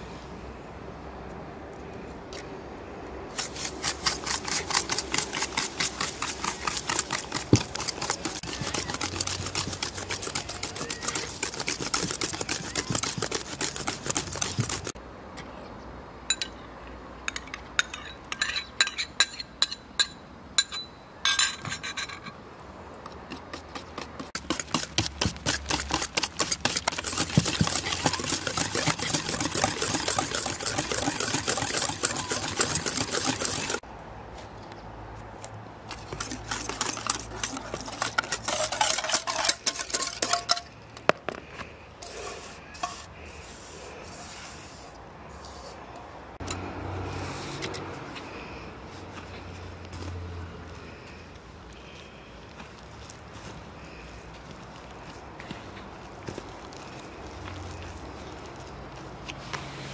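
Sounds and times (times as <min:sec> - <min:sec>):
whisk scraping in a bowl: 0:03.4 - 0:15.0, 0:23.7 - 0:33.8, 0:35.9 - 0:40.6.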